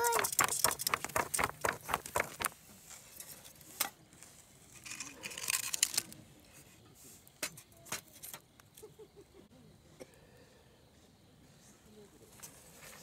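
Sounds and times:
wood clicking and knocking: 0.0 - 2.6.

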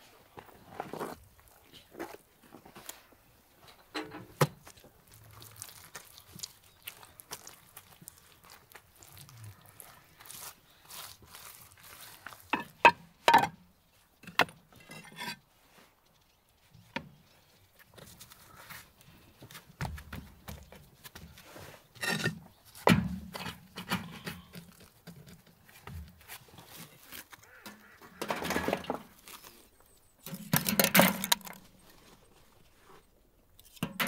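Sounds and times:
brick clinking on brick: 12.6 - 13.6
brick knocks and scrapes: 14.2 - 15.4.

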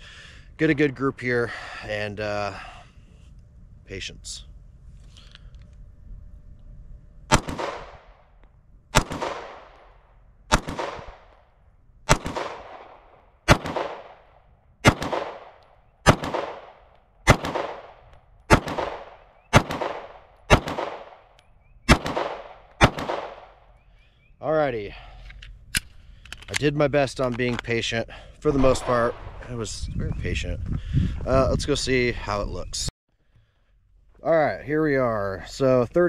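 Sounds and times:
pistol shots with echo: 7.3 - 8.1, 8.9 - 9.9, 10.5 - 11.3, 12.1 - 21.3, 21.9 - 23.6.

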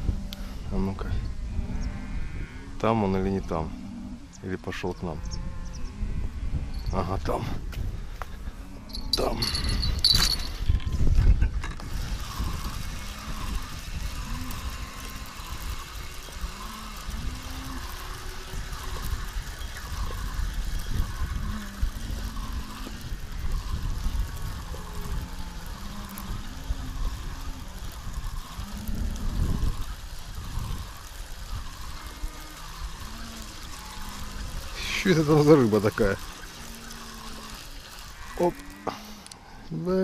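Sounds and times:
wind rumble on microphone: 0.0 - 36.3
fishing reel whirring: 8.8 - 10.9, 11.7 - 39.6.

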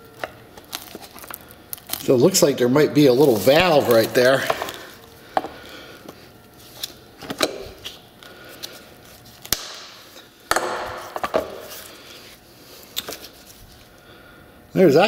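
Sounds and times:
sharp plastic snap: 9.5 - 9.9.

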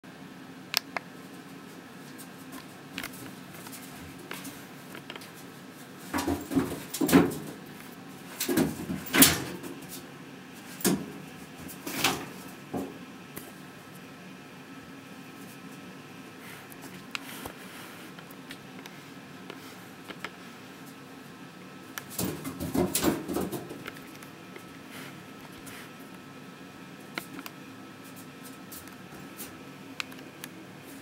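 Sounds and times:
cat scrabbling in bathtub: 6.1 - 7.6, 22.1 - 23.8.

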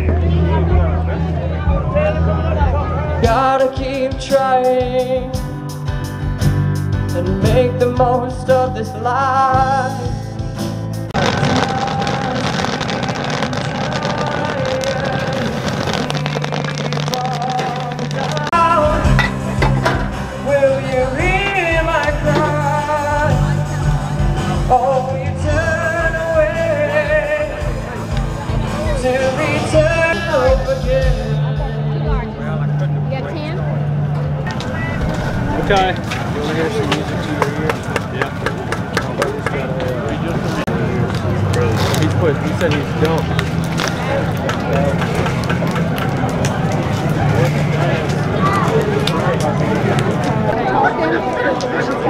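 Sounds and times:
acoustic guitar: 2.2 - 38.9
man singing: 3.1 - 5.5, 7.1 - 10.5, 11.2 - 19.6, 20.3 - 27.9, 28.7 - 32.0.

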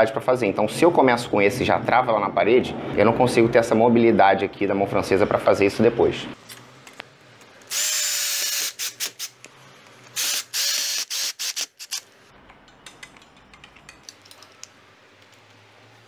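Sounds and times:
cordless drill driving screw: 7.7 - 9.3, 10.2 - 12.0.

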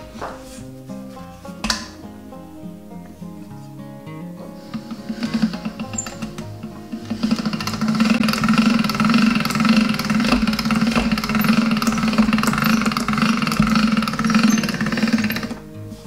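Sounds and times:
pasta roller machine running: 4.6 - 16.0.

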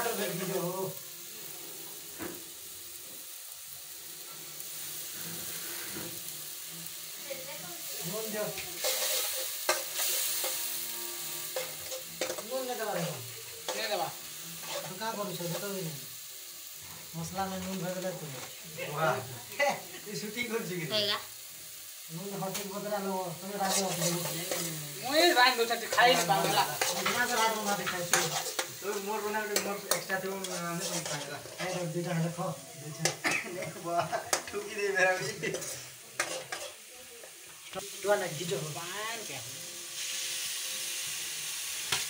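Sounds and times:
gravy sizzling in a pan: 0.0 - 42.0
spoon scraping pan: 8.8 - 15.7, 23.6 - 24.8, 25.8 - 32.1, 35.2 - 36.8.

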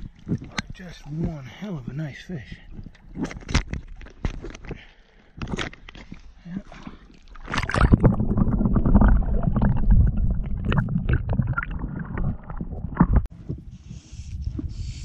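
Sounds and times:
underwater rumbling and gurgling: 0.0 - 1.3, 5.4 - 13.8.

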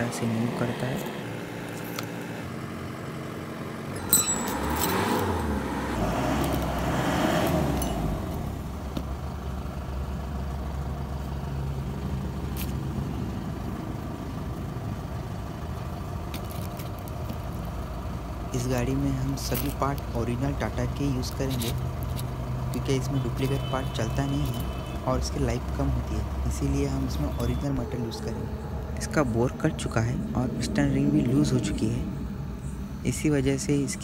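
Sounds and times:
vehicle engine rumbling: 0.0 - 34.0.

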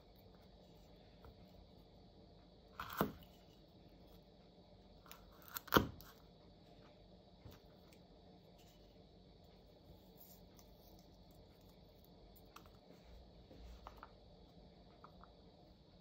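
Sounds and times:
garlic peeling crackles: 5.0 - 6.1.

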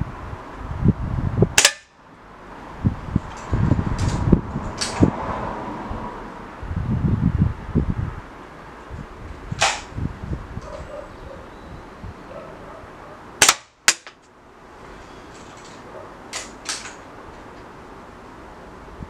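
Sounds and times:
air rifle cracks: 9.6 - 9.9, 13.4 - 14.2, 16.3 - 17.0.

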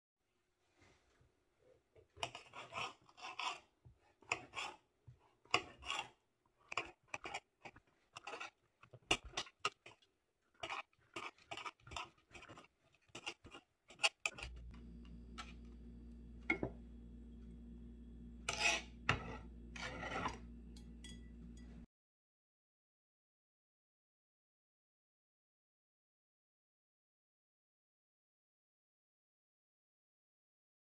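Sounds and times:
steady low hum: 14.4 - 21.9.

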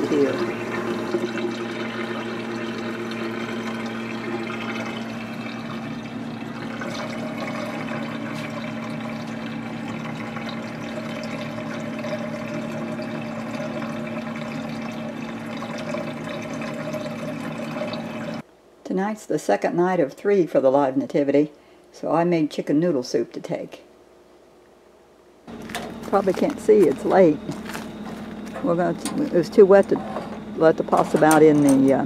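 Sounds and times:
dishwasher water washing: 0.0 - 18.4, 25.5 - 32.0
low motor hum: 0.0 - 18.4, 25.5 - 32.0.

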